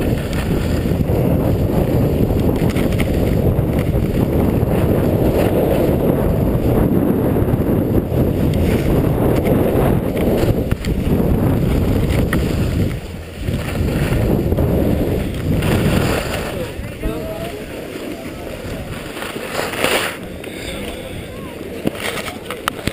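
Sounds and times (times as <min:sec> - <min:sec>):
skis running over packed snow: 0:00.0 - 0:22.9
wind buffeting camera: 0:00.0 - 0:22.9.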